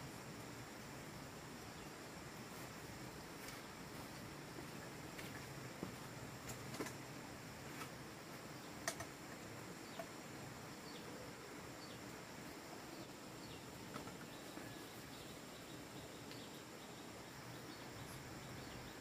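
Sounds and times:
insects: 0:00.0 - 0:19.0
bird chirps: 0:13.0 - 0:19.0.

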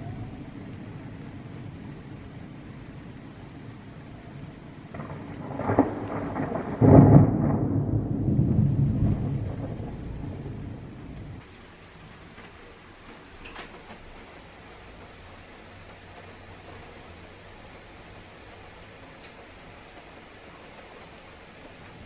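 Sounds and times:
thunderclap rumbling: 0:00.0 - 0:11.4
steady rain: 0:00.0 - 0:22.0
thunder crack: 0:04.9 - 0:11.4.

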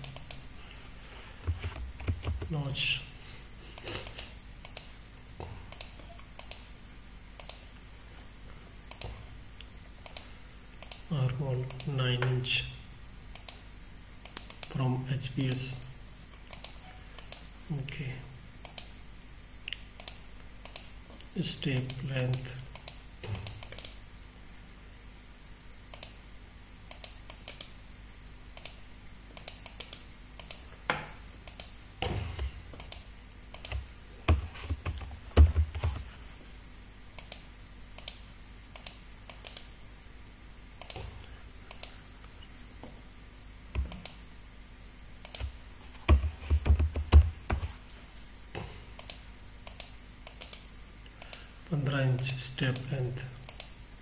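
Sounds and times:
mouse clicking: 0:00.0 - 0:00.4, 0:03.8 - 0:04.9, 0:05.7 - 0:06.6, 0:07.4 - 0:07.6, 0:08.9 - 0:11.0, 0:14.2 - 0:14.7, 0:16.5 - 0:17.5, 0:18.6 - 0:18.9, 0:19.7 - 0:20.9, 0:21.8 - 0:24.0, 0:25.9 - 0:26.2, 0:26.9 - 0:27.7, 0:28.6 - 0:28.8, 0:29.4 - 0:30.6, 0:31.4 - 0:31.7, 0:32.8 - 0:36.1, 0:37.2 - 0:39.7, 0:40.8 - 0:41.0, 0:41.7 - 0:42.0, 0:43.8 - 0:44.2, 0:45.2 - 0:47.7, 0:49.0 - 0:51.4
computer keyboard clicking: 0:01.5 - 0:02.6, 0:31.5 - 0:31.7, 0:33.6 - 0:36.1, 0:43.8 - 0:44.2, 0:45.2 - 0:47.7, 0:49.0 - 0:50.6.

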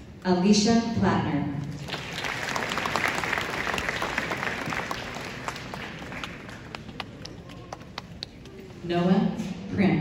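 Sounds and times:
audience applauding: 0:01.7 - 0:08.8.

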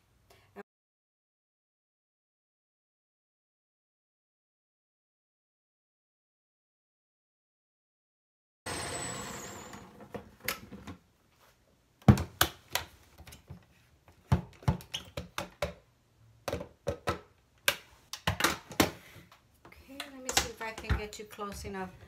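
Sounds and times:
blender motor winding down: 0:08.7 - 0:10.2.

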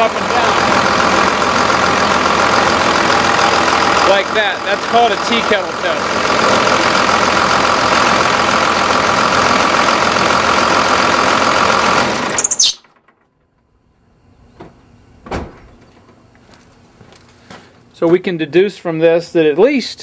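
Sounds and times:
diesel engine idling: 0:00.0 - 0:14.2.

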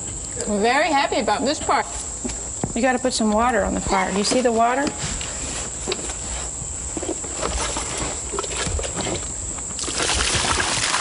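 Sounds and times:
high insect drone: 0:00.0 - 0:11.0
water hissing on a campfire: 0:09.8 - 0:11.0.

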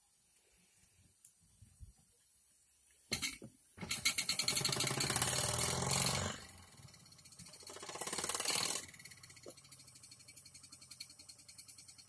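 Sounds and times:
model steam engine chuffing: 0:03.8 - 0:12.0.

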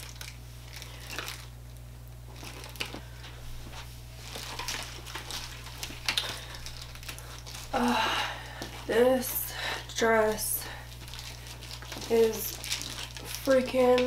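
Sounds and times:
steady low hum: 0:00.0 - 0:14.0
clothing and handbag rustling: 0:10.0 - 0:14.0.

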